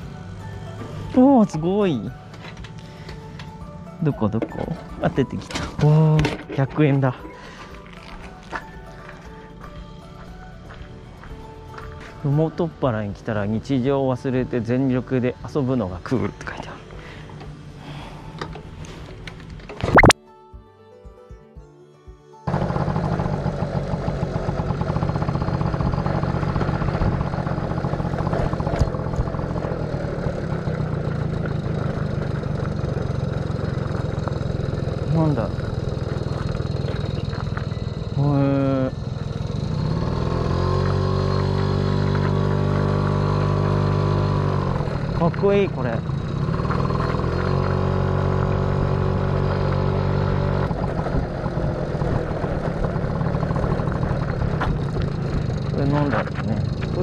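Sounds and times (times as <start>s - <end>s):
small motorcycle engine putter: 22.5s - 57.0s.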